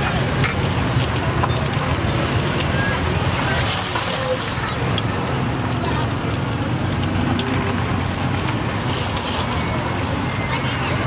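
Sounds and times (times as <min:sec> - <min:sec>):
hot oil sizzling: 0:00.0 - 0:11.0.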